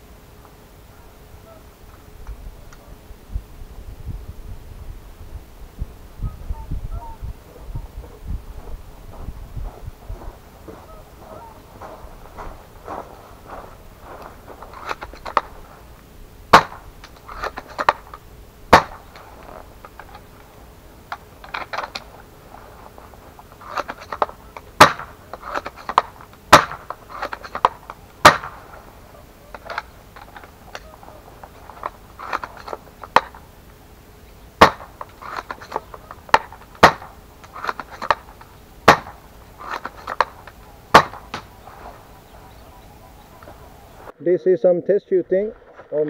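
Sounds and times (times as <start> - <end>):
airsoft rifle shots: 16.5 - 18.1, 18.7 - 20.2, 23.6 - 28.8, 34.6 - 41.5.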